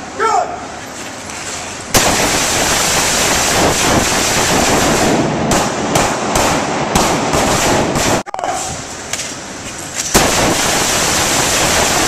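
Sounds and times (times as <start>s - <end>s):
rifles firing rapidly: 2.0s - 8.2s, 10.2s - 12.0s
loud gunshot cracks: 2.0s - 8.3s, 10.1s - 12.0s.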